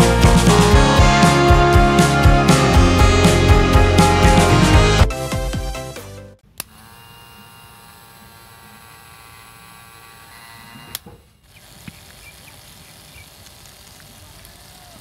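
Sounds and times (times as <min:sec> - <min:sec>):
small motor whining: 0:06.6 - 0:15.0.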